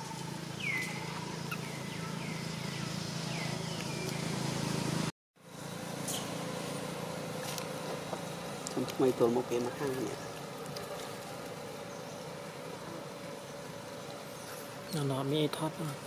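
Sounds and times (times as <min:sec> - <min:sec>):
faint chirping calls: 0:00.0 - 0:04.4, 0:09.3 - 0:15.1
steady low hum: 0:00.0 - 0:16.0.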